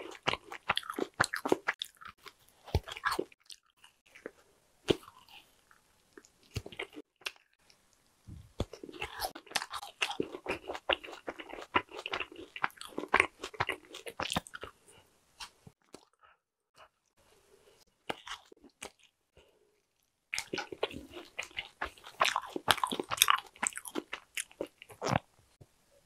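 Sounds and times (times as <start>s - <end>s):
chewing sticky marshmallow: 0.0s - 14.8s, 19.8s - 25.3s.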